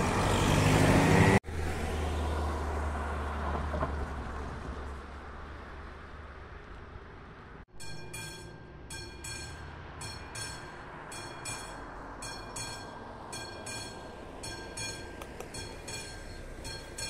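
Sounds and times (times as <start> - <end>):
level crossing bell ringing: 7.8 - 17.0.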